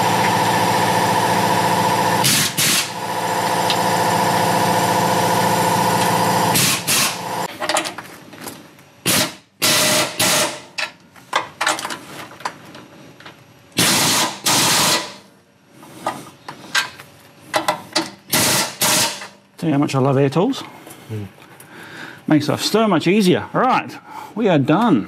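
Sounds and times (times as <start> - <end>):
pneumatic air tool driving bolts: 2.2 - 3.8, 6.0 - 7.8, 9.0 - 10.9, 13.8 - 15.2, 17.5 - 19.4.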